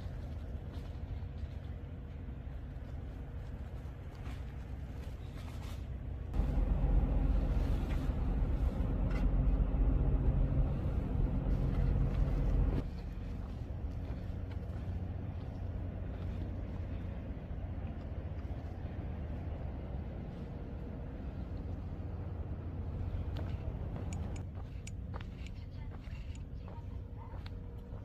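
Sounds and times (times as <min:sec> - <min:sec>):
engine rumble: 0:00.0 - 0:28.0
low drone: 0:06.3 - 0:24.9.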